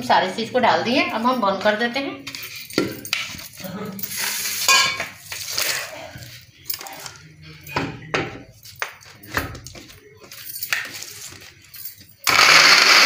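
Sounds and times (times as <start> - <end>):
metal jar and lid clinking: 2.4 - 5.9.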